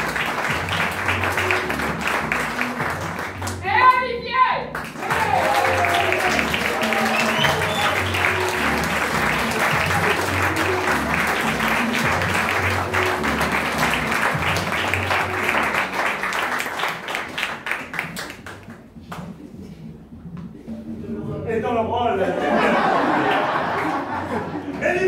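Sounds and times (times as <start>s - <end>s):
audience applauding: 0.0s - 3.6s, 4.7s - 19.3s, 22.8s - 24.6s
music with low bass line: 0.0s - 3.6s, 4.7s - 16.6s.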